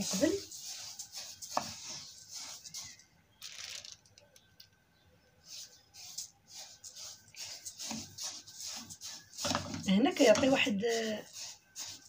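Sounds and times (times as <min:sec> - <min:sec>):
spoon stirring seeds in saucepan: 0:00.0 - 0:03.1, 0:05.4 - 0:12.0.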